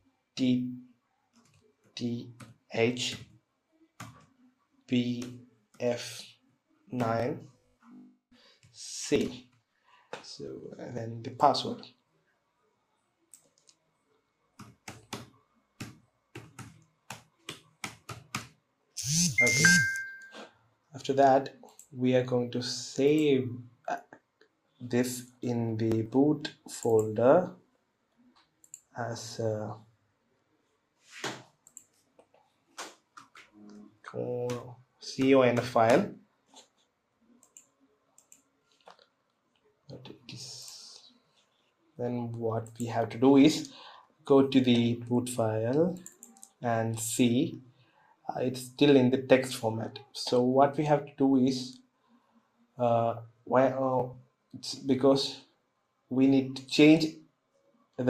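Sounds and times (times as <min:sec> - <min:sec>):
computer keyboard typing: 0:14.6 - 0:18.5.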